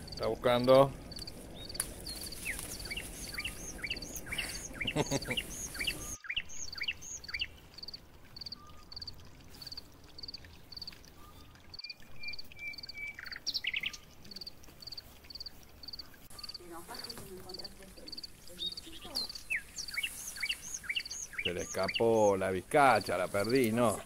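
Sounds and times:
rising and falling insect calls: 1.1s - 10.9s, 18.1s - 23.0s
rustling in brush: 1.3s - 6.2s, 18.8s - 21.5s.

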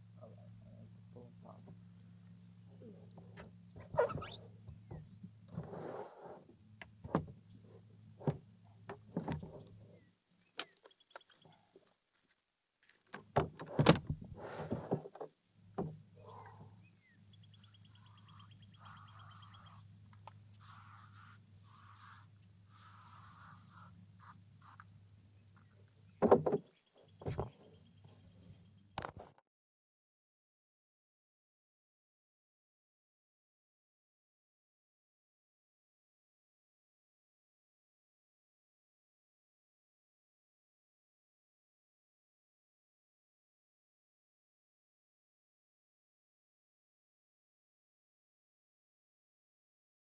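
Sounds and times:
faint steady hum: 0.0s - 29.2s
faint animal calls: 0.1s - 5.2s, 16.1s - 20.0s.

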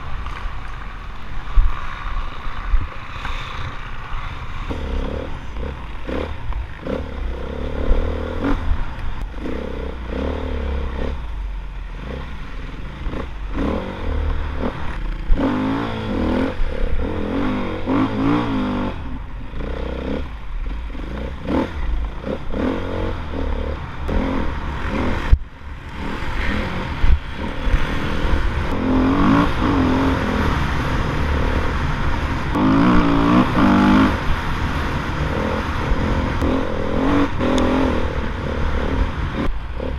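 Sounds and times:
motorcycle engine revving: 0.0s - 39.9s
wind rumble on microphone: 0.0s - 39.9s.

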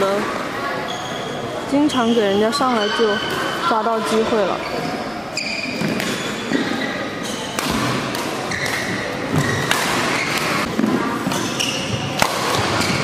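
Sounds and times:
noise of play in hall: 0.0s - 13.0s
racket hitting shuttlecock: 5.7s - 6.7s, 7.4s - 13.0s.

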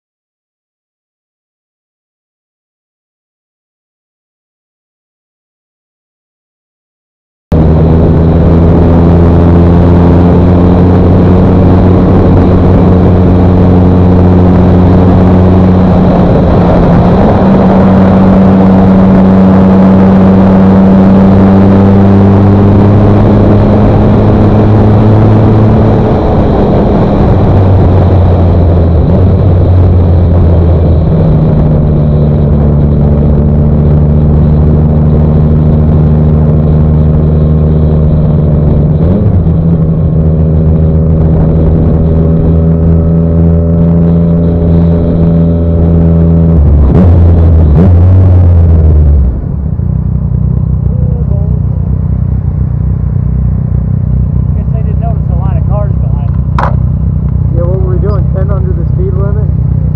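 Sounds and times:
wind and road noise: 7.5s - 59.9s
motorcycle engine pulling: 56.1s - 56.9s.

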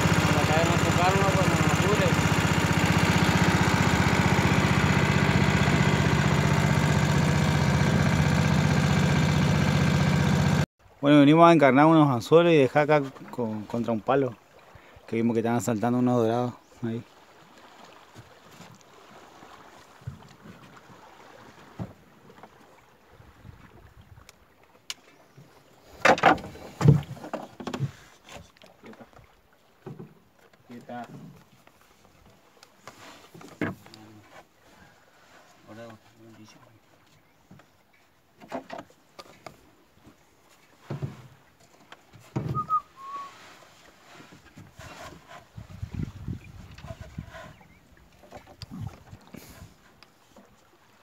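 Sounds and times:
water splashing: 0.0s - 10.6s, 16.9s - 25.1s, 41.8s - 44.8s
outboard motor running: 0.0s - 10.7s, 16.9s - 51.0s
knocks on a boat: 26.0s - 28.0s, 42.2s - 42.7s.

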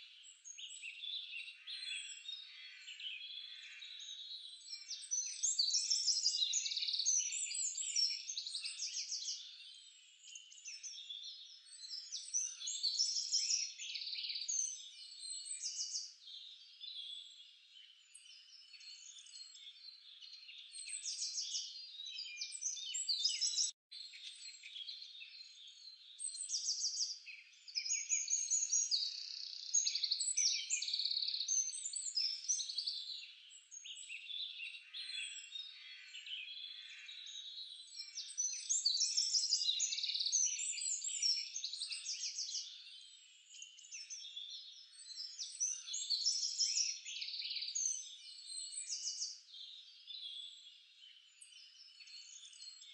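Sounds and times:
birds chirping and trilling: 0.1s - 52.9s.

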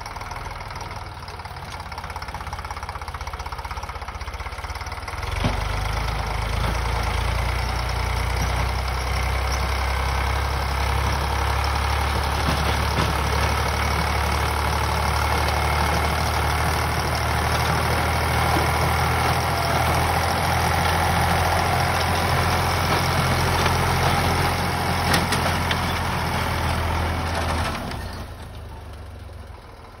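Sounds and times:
tractor diesel engine running: 0.0s - 30.0s
rotavator churning soil: 12.2s - 27.9s.

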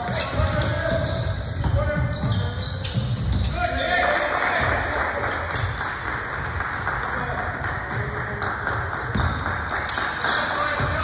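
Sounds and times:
sneakers squeaking on court: 0.0s - 4.1s, 5.1s - 6.3s, 8.7s - 11.0s
basketball bouncing: 7.6s - 11.0s.

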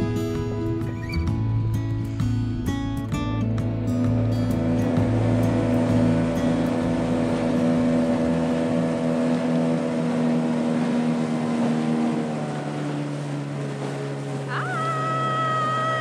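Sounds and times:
outboard motor running: 0.0s - 16.0s.

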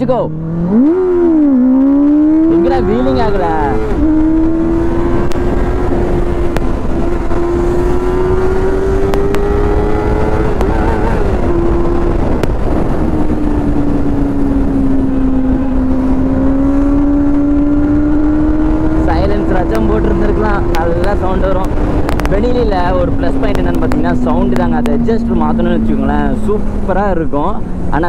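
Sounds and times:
wind noise on microphone: 0.0s - 27.9s.

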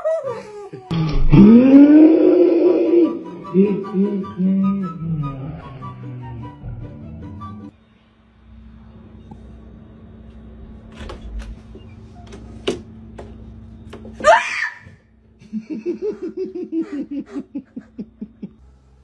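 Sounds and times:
girl laughing: 15.4s - 18.6s.

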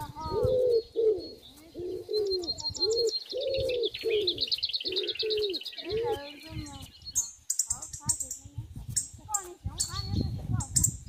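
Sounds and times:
bird cooing: 0.0s - 6.4s
bird high rapid trill: 1.3s - 11.0s.

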